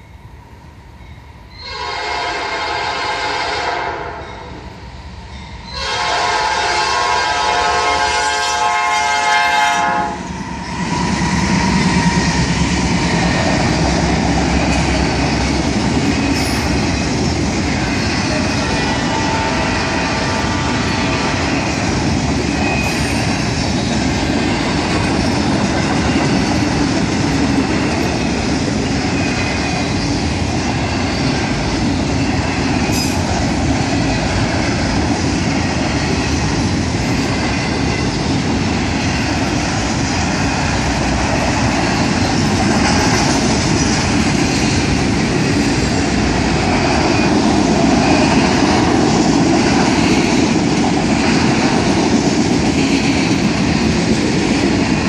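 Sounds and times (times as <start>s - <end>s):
train wheels on rails: 0.0s - 55.0s
train air horn chord: 1.6s - 4.6s, 5.7s - 10.3s.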